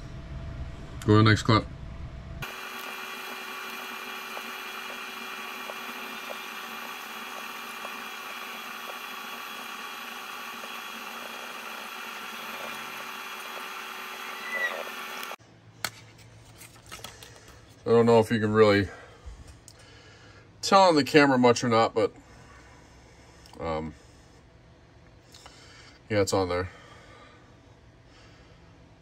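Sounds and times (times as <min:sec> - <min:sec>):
electronic drone: 0:02.4 - 0:15.4.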